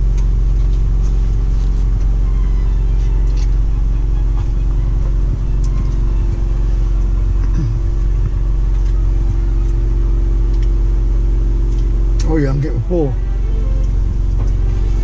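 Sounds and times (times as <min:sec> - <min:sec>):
truck diesel engine idling: 0:00.0 - 0:15.0.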